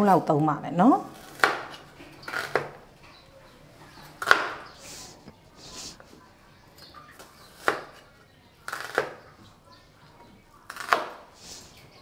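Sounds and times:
knife scraping: 1.1 - 2.8.

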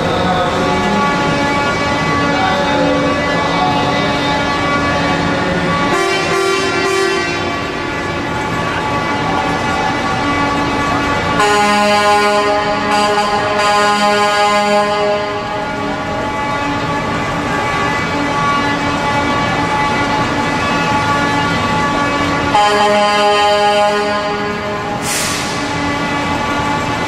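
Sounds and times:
truck air horn blasts: 0.7 - 3.3, 4.1 - 9.3, 10.0 - 27.0.

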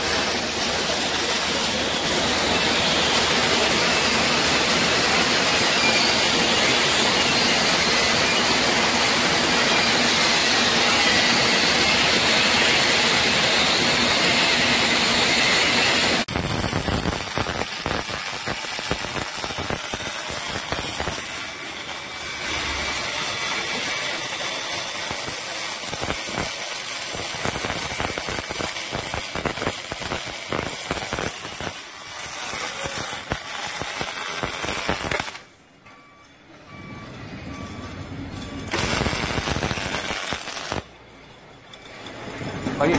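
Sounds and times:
welding arc hissing: 0.0 - 35.5, 38.7 - 41.0
welding crackle of small pops: 16.2 - 21.6, 22.6 - 35.5, 38.7 - 40.9.

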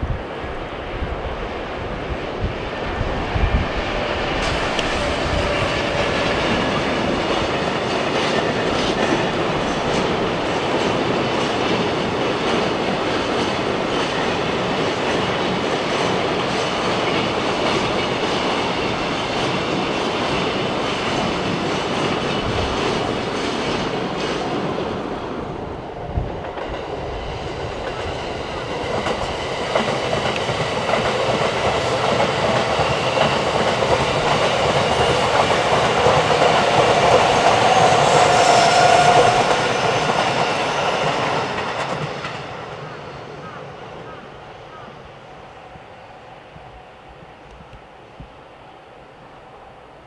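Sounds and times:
wind buffeting microphone: 0.0 - 42.9
train wheels clacking over rails: 2.2 - 45.0.

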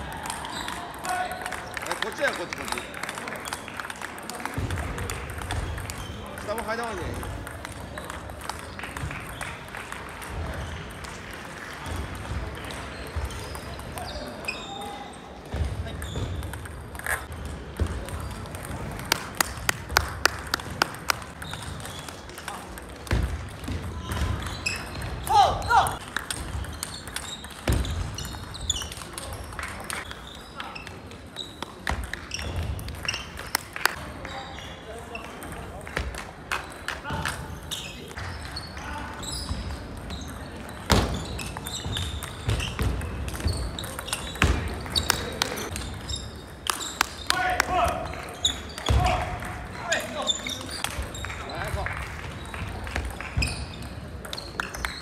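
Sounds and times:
table tennis ball bouncing: 2.6 - 14.2, 15.5 - 25.3, 26.0 - 30.2, 31.5 - 33.8, 39.4 - 47.2.

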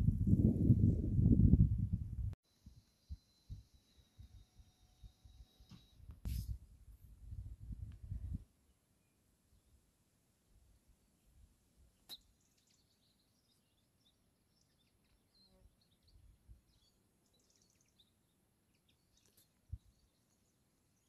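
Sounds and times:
small birds chirping: 12.0 - 21.0.

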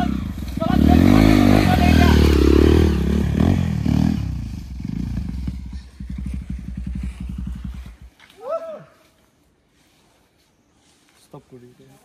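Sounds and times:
dirt bike engine idling: 0.0 - 8.2.

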